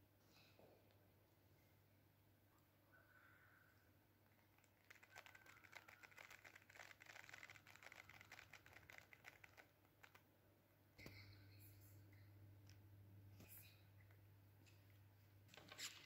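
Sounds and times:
rustling: 0:04.2 - 0:10.2
rapid clicking: 0:04.3 - 0:10.2.

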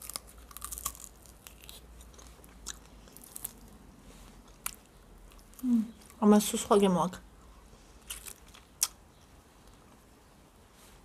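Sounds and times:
fried chicken crunching: 0:00.0 - 0:03.8, 0:08.0 - 0:09.0.

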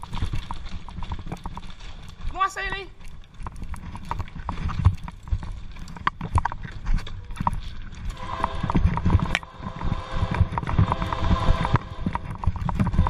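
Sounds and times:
bicycle clattering on railway track: 0:00.0 - 0:03.0
steady pitched hum: 0:08.1 - 0:13.0.

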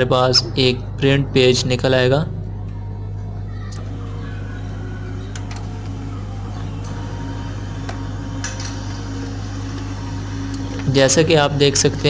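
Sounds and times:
printer motor hum: 0:02.4 - 0:12.0.

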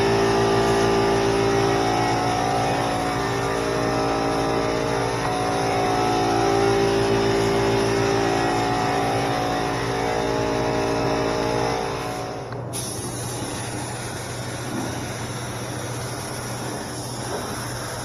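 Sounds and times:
air compressor motor drone: 0:00.0 - 0:18.0
spray gun air hissing: 0:12.1 - 0:18.0.

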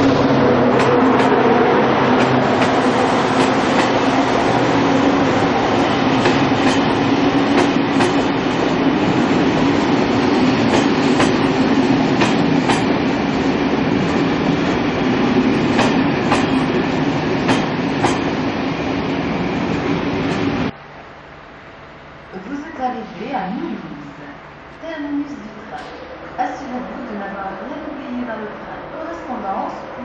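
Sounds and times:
train wheels rumbling on rail: 0:00.0 - 0:20.8.

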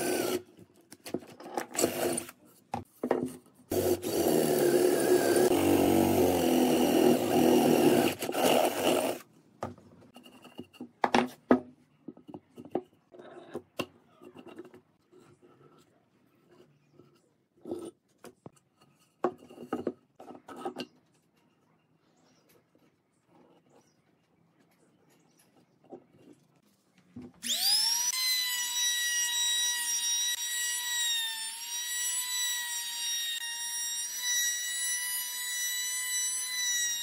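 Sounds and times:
cordless drill boring wood: 0:00.0 - 0:00.4, 0:01.8 - 0:02.3, 0:03.7 - 0:09.2, 0:27.4 - 0:37.0.

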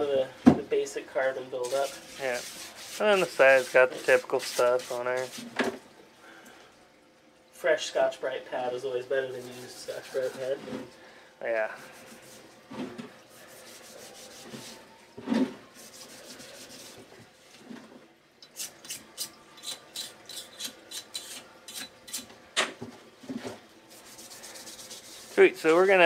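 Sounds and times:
pad scrubbing metal: 0:01.6 - 0:05.5, 0:23.9 - 0:26.0.

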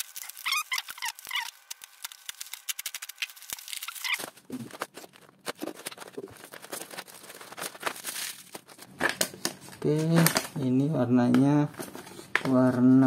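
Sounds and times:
plastic bag tearing: 0:00.0 - 0:09.3
plastic packaging crinkling: 0:00.0 - 0:12.5.

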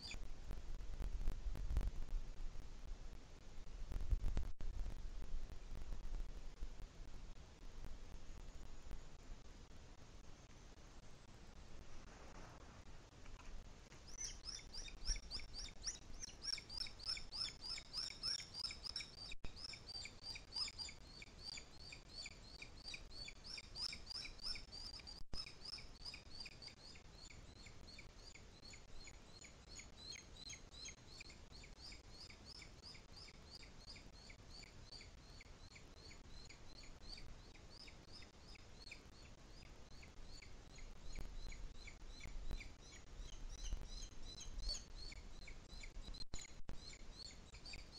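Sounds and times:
eagle chick begging calls: 0:14.1 - 0:26.8.

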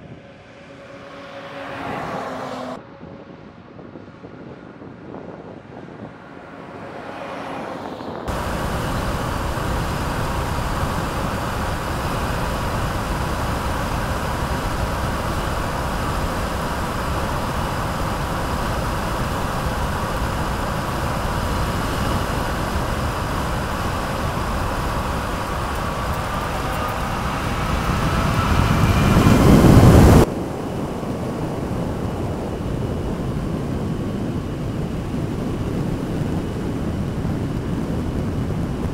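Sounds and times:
truck tyre and wind rush: 0:00.0 - 0:38.9
faint high whine: 0:08.2 - 0:38.3.

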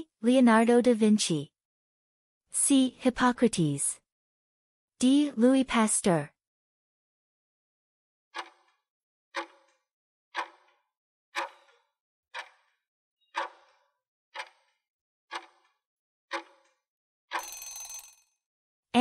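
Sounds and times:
clock ticking: 0:08.4 - 0:08.7, 0:09.4 - 0:09.8, 0:10.4 - 0:10.8, 0:11.4 - 0:11.8, 0:12.4 - 0:12.8, 0:13.4 - 0:13.8, 0:14.4 - 0:15.7, 0:16.3 - 0:16.7.

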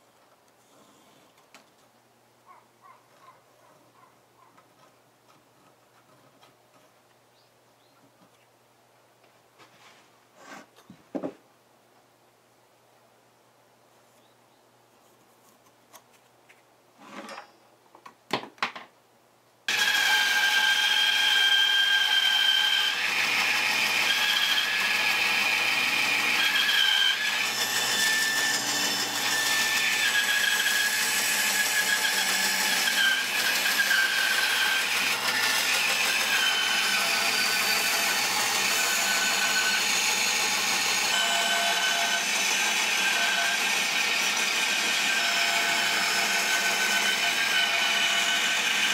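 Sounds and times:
bandsaw cutting wood: 0:19.7 - 0:48.9.

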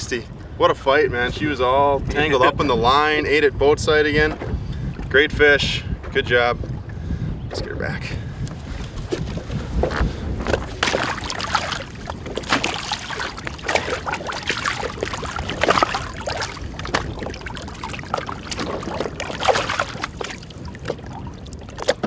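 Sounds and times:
water sloshing against boat hull: 0:03.8 - 0:22.0
fish splashing in water: 0:10.4 - 0:22.0.

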